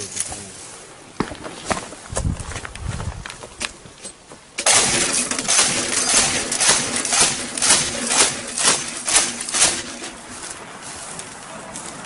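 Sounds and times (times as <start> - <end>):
machine gun automatic fire: 4.6 - 10.2.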